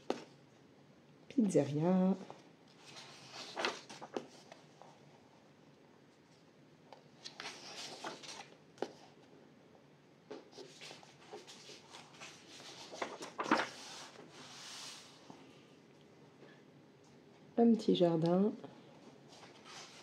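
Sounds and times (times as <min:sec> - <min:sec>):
paper pages rustling: 0:02.2 - 0:05.0, 0:07.0 - 0:09.2, 0:10.3 - 0:15.4, 0:19.3 - 0:20.0.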